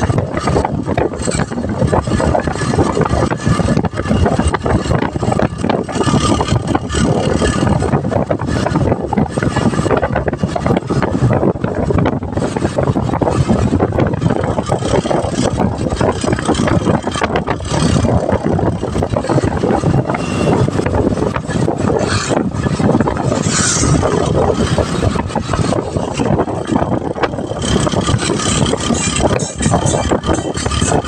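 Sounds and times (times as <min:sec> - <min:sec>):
road noise: 0:00.0 - 0:31.0
wind on microphone: 0:00.0 - 0:31.0.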